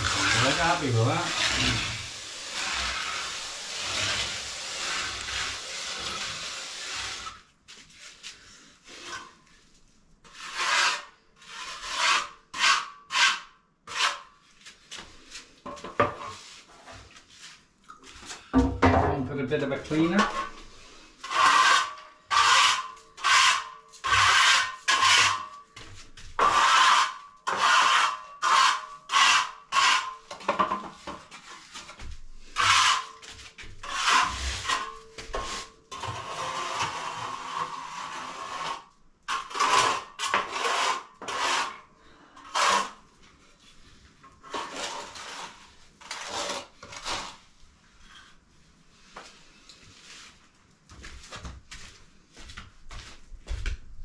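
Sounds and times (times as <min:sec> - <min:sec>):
sponge float rubbing on cement: 0:00.0 - 0:07.4, 0:10.3 - 0:14.8, 0:20.2 - 0:25.5, 0:31.4 - 0:41.8.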